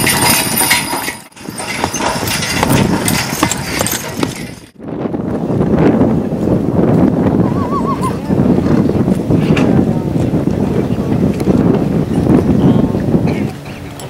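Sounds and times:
horse hooves clip-clopping: 0.0s - 4.8s.

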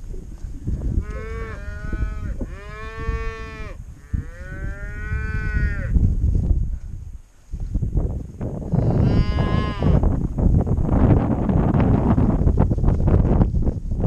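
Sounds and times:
cattle mooing: 1.0s - 5.9s, 8.8s - 10.0s.

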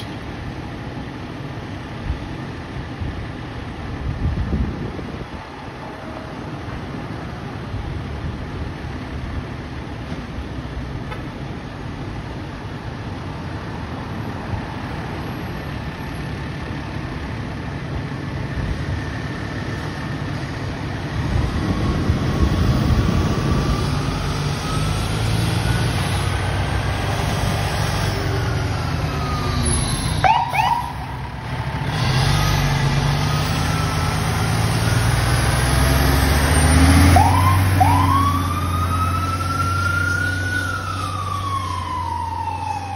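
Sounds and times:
fire truck diesel engine rumbling: 0.0s - 42.9s
siren wailing and yelping: 29.0s - 31.4s, 37.1s - 42.9s.

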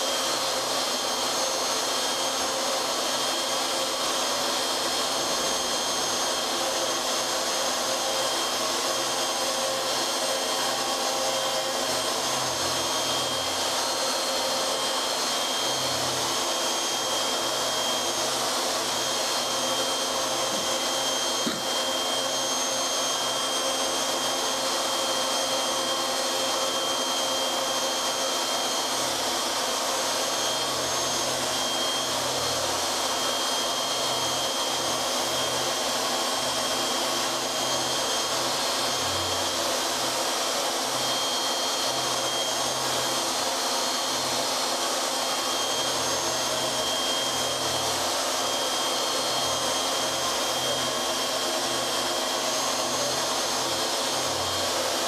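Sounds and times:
router spindle whining: 0.0s - 55.0s.

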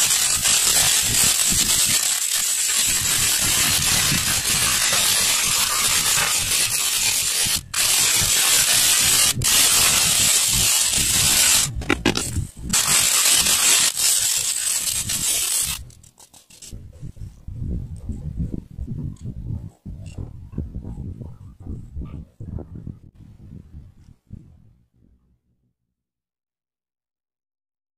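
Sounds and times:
electric mini drill boring plastic: 0.0s - 16.6s.

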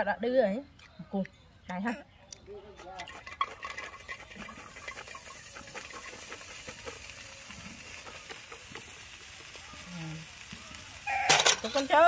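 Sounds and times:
hot pan sizzling: 2.8s - 12.0s
insects pattering into steel wok: 3.0s - 12.0s.

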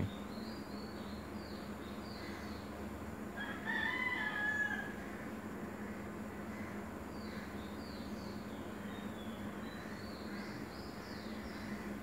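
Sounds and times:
steady low hum: 0.0s - 3.4s
rooster crowing: 3.4s - 5.0s.

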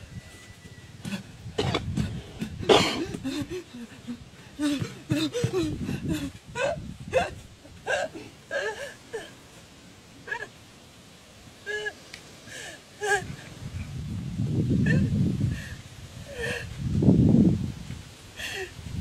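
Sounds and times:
person gasping and grunting: 1.1s - 9.3s, 14.8s - 16.8s.

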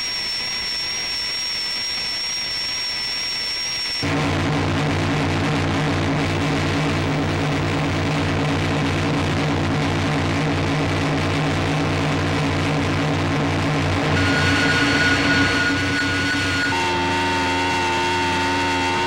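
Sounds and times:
noisy synthesizer drone: 0.0s - 19.0s
low throbbing pulse: 4.0s - 19.0s.

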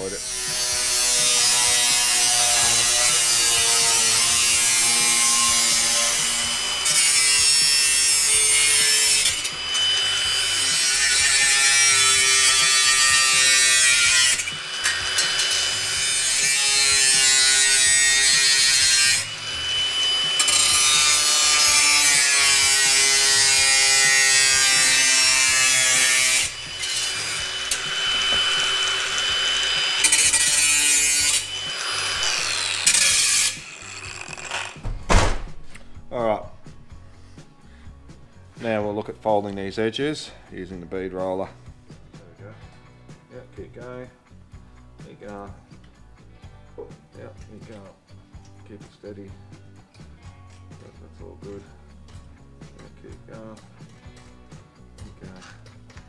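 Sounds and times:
power tool cutting sheet steel: 0.0s - 34.8s.

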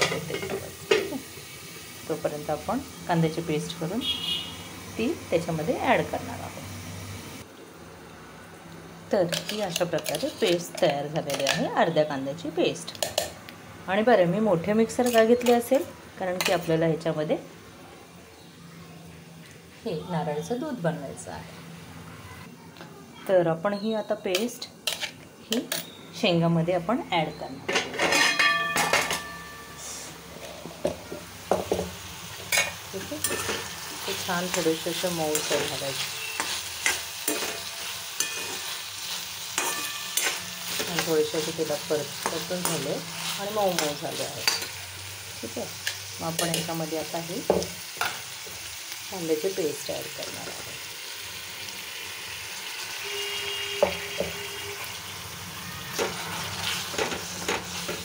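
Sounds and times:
food sizzling in pan: 0.0s - 7.7s, 29.8s - 58.0s.

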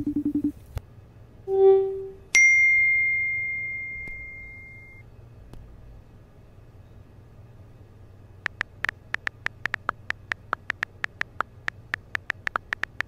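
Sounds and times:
faint low hum: 0.0s - 13.0s
phone keyboard clicks: 8.5s - 13.0s.

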